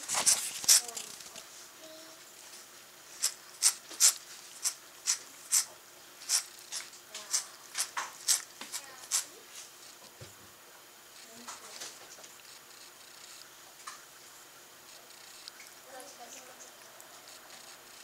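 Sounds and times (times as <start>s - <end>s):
cat licking chair: 3.1s - 10.0s, 11.2s - 13.6s, 14.8s - 16.1s, 16.7s - 18.0s.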